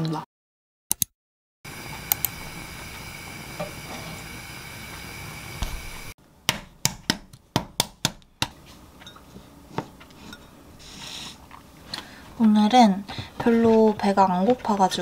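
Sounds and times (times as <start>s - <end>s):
gas burner hissing: 1.7s - 6.2s.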